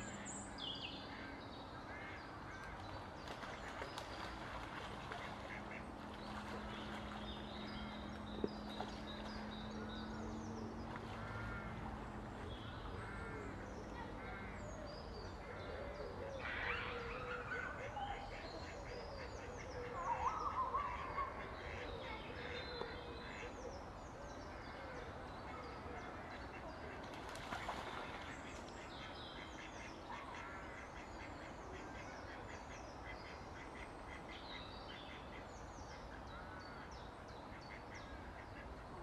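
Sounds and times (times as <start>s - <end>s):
water splashing: 3.0s - 9.7s, 26.9s - 28.8s.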